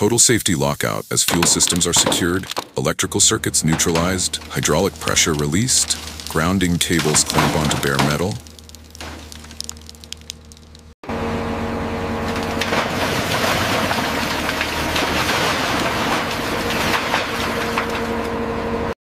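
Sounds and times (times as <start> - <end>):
metal debris clattering and falling: 3.4 - 10.7, 12.2 - 18.4
excavator engine and hydraulic hum: 10.4 - 19.0.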